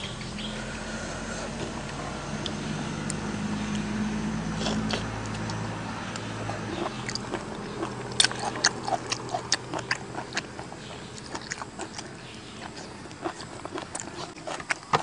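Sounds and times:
man eating with wet mouth sounds: 4.5s - 5.6s, 6.2s - 15.0s.

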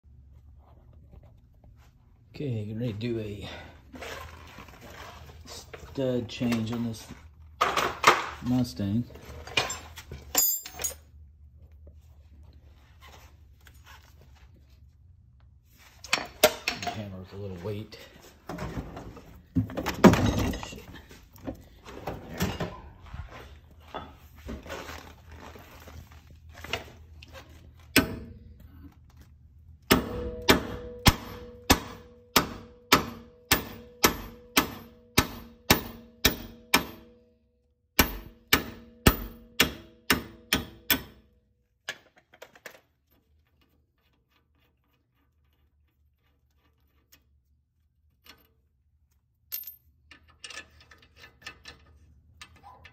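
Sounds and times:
hammer striking metal with ring: 29.9s - 37.2s, 38.0s - 41.3s.

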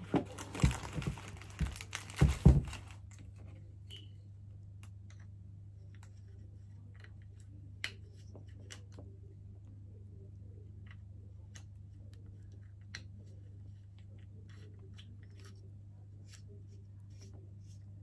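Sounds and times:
knocks and rustles: 0.0s - 3.0s
low steady hum: 0.0s - 18.0s.

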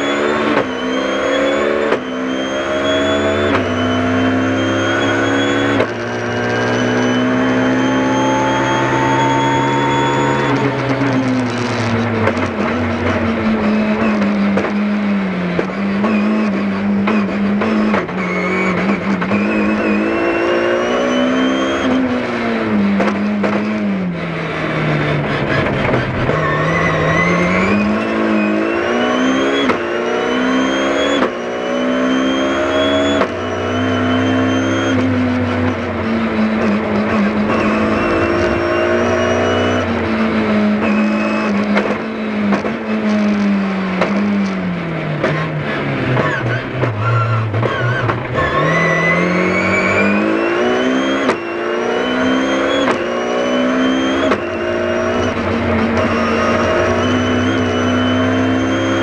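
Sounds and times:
rally car engine revving: 0.0s - 59.0s
thin high whine: 6.6s - 11.3s.

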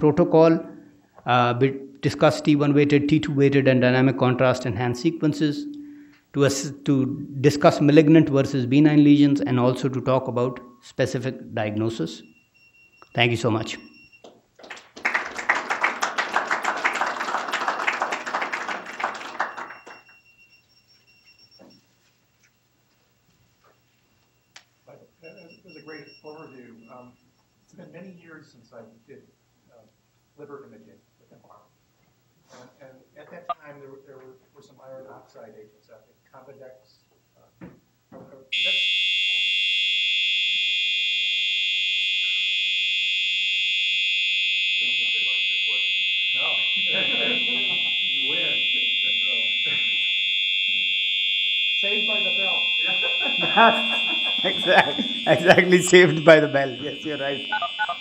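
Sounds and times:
audience applauding: 14.6s - 20.1s
alarm bell ringing: 18.3s - 21.6s, 44.1s - 58.0s
high electronic tone: 44.8s - 51.0s, 51.8s - 58.0s.

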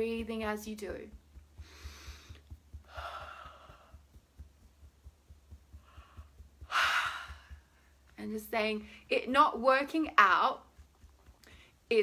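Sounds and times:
woman breathing deeply: 1.6s - 4.0s, 5.8s - 8.0s.

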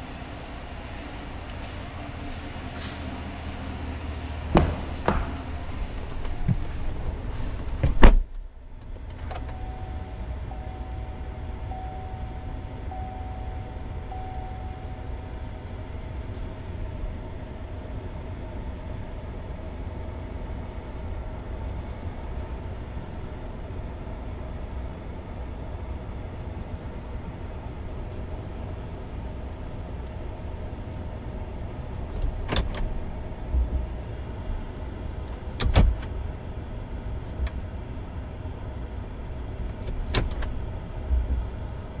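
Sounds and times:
car door shutting: 4.5s - 9.7s, 35.6s - 36.2s
warning chime: 9.5s - 15.4s.

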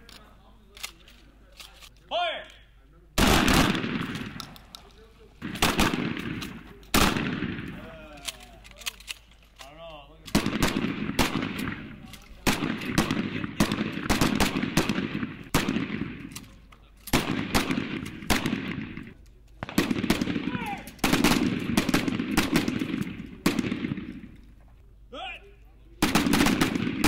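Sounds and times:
shotguns firing: 3.2s - 4.7s, 5.4s - 9.1s, 10.2s - 24.6s, 26.0s - 27.0s.

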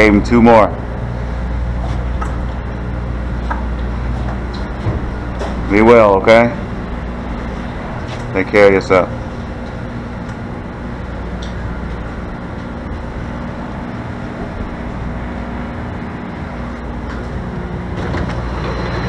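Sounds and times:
rail car rumbling: 0.8s - 19.0s.

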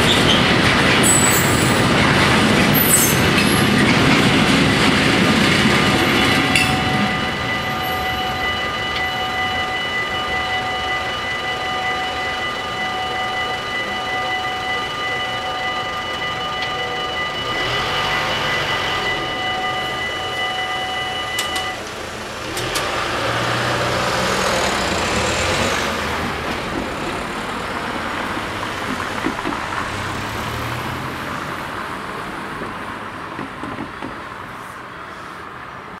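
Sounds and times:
level-crossing bells ringing: 1.0s - 31.7s
cars driving past: 21.9s - 35.9s.

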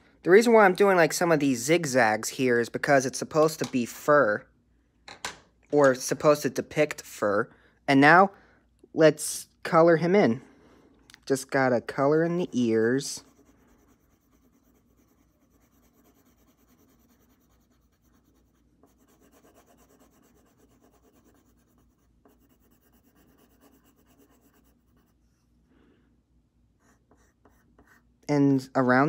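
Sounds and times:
pencil shading on paper: 12.0s - 25.6s, 26.8s - 28.1s.

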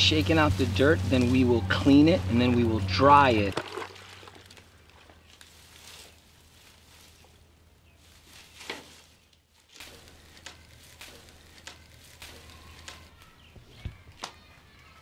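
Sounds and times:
scissors snipping dried roots: 9.7s - 13.2s.

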